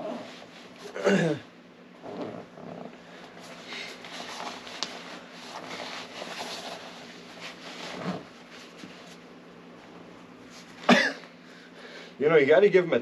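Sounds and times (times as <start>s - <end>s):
zipper scraping: 0.0s - 1.0s, 2.0s - 9.0s
nylon pants rustling: 2.0s - 9.3s.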